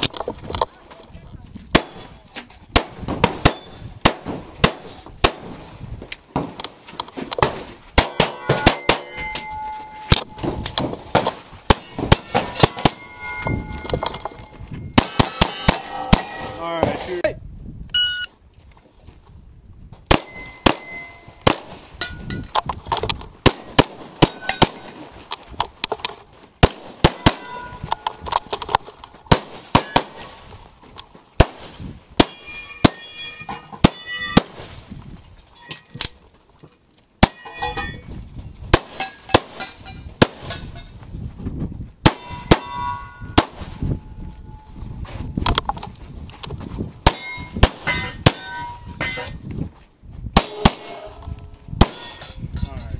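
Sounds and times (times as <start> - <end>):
pistol shots: 1.7 - 2.1, 2.7 - 5.6, 7.4 - 9.2, 15.0 - 16.6, 20.1 - 21.8, 26.6 - 27.6, 29.3 - 30.3, 50.4 - 51.1
metallic ringing: 8.2 - 10.8, 11.8 - 16.8, 20.2 - 21.4, 27.2 - 28.3, 32.3 - 34.4, 37.2 - 38.1, 42.2 - 44.8, 47.1 - 49.4.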